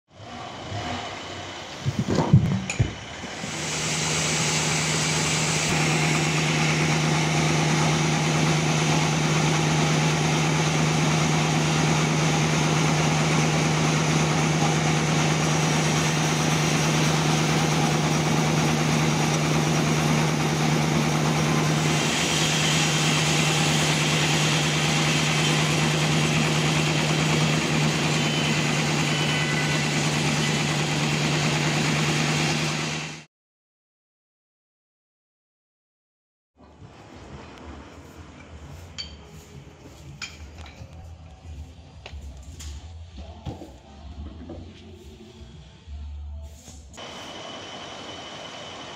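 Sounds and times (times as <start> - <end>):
sawmill machine humming: 0.2 - 33.3, 47.0 - 48.9.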